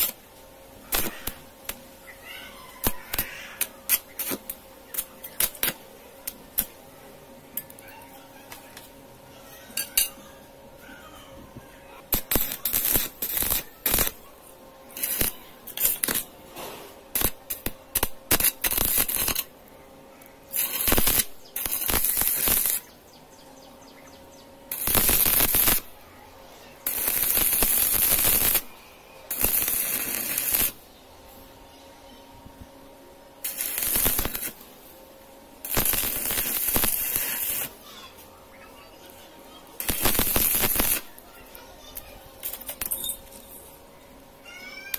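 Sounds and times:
welding arc crackling: 0.0s - 6.8s, 11.8s - 23.0s, 24.6s - 26.0s, 26.6s - 30.9s, 33.3s - 43.3s.

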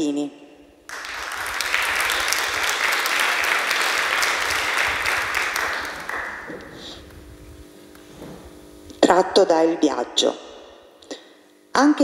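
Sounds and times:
audience applauding: 0.9s - 6.8s.

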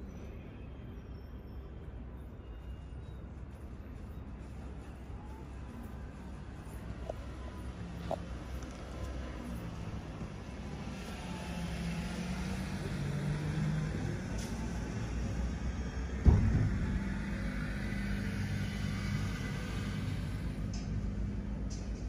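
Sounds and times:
sharp thump: 16.2s - 17.1s.

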